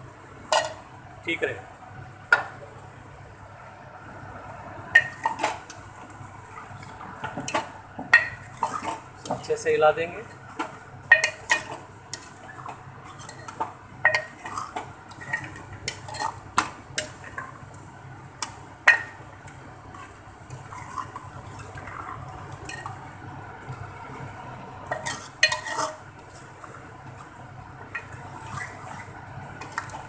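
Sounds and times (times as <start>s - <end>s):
metal spoon scraping a metal pot: 11.2s - 16.4s, 20.6s - 21.8s, 24.9s - 26.0s, 28.0s - 29.1s.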